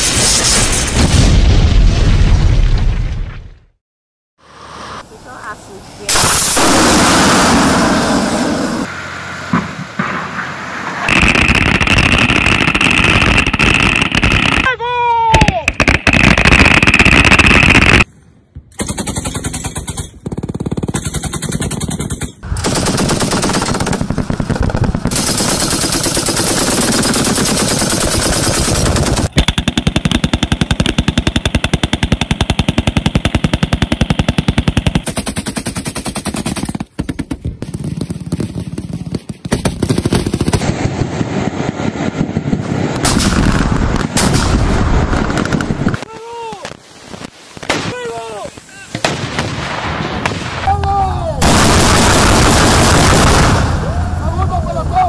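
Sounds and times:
automatic weapons firing: 18.8 - 37.3, 51.4 - 53.7.

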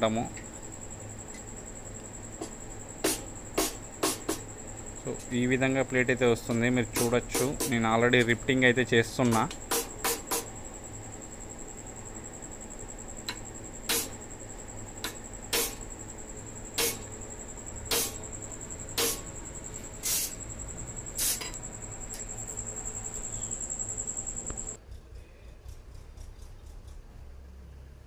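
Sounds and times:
high-pitched whine: 0.0 - 24.8
sharp metal strikes: 3.0 - 4.4, 6.9 - 7.8, 9.2 - 10.5, 13.9 - 14.2, 15.0 - 15.8, 16.8 - 17.1, 17.9 - 18.2, 19.0 - 19.3.

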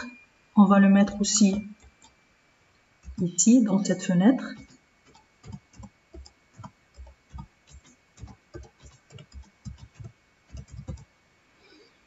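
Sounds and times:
keyboard key taps: 4.6 - 11.1.

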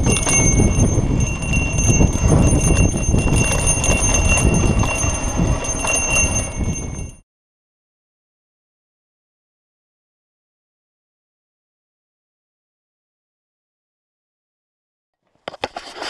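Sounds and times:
high metallic ringing: 0.0 - 7.2
mountain bike rattling over trail: 0.0 - 7.2.

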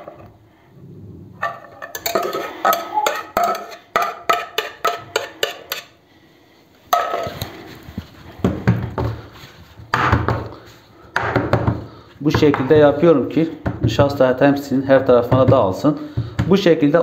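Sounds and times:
metal clatter: 1.4 - 5.2
metal pot clanking: 1.4 - 6.0, 6.9 - 7.4.

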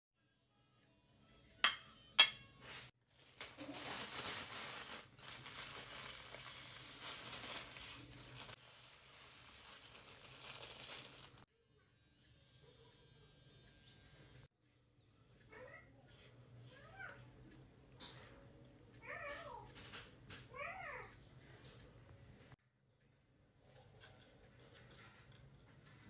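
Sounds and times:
ceramic plate clinking on counter: 1.7 - 2.4
plastic bag crinkling: 3.1 - 11.4
seeds pouring onto plate: 3.6 - 11.4.

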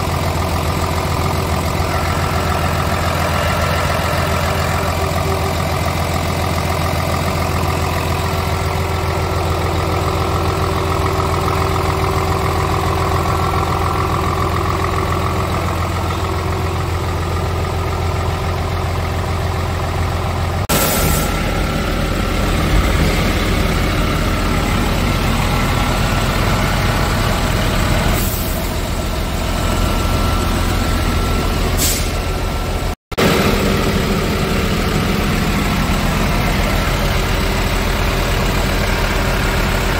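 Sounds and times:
diesel truck engine idling: 0.0 - 39.9
brief air hisses: 20.7 - 21.4, 31.8 - 32.2.

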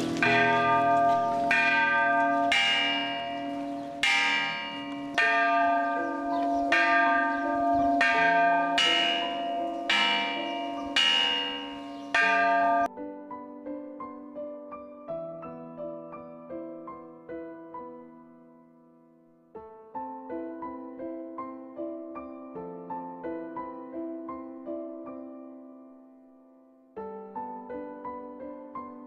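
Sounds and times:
church bell ringing: 0.0 - 12.9.

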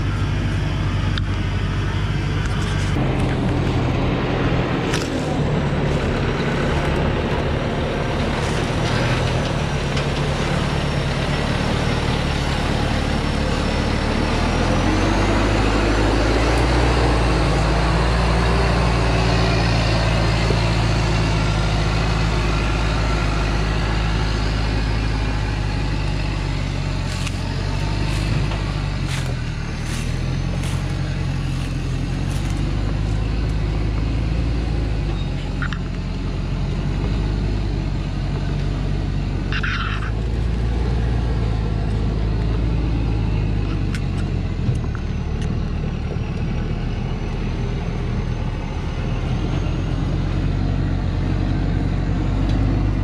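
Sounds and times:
diesel truck engine labouring: 0.0 - 53.0.

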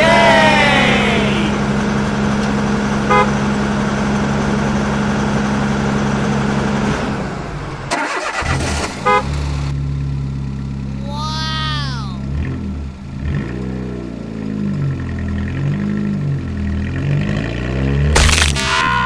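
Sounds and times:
low engine drone: 0.0 - 7.9
truck engine running: 0.0 - 17.0
horn beep: 3.1 - 3.3.

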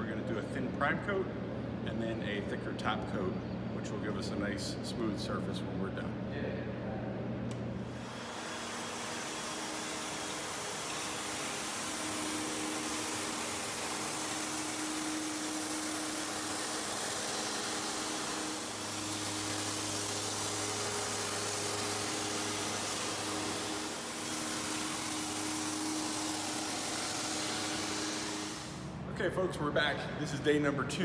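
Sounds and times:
shot blaster hissing: 8.0 - 28.9.

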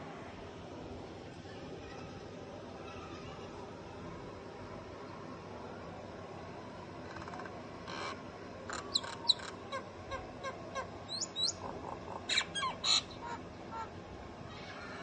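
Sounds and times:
myna calling with clicks and whistles: 8.7 - 13.4.

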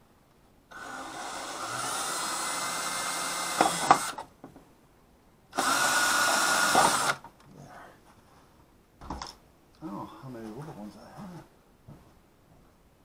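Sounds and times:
cordless drill boring: 0.7 - 4.2, 5.6 - 7.2.

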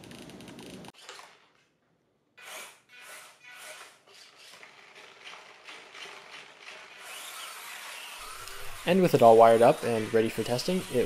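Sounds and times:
servos whirring: 2.4 - 11.0.

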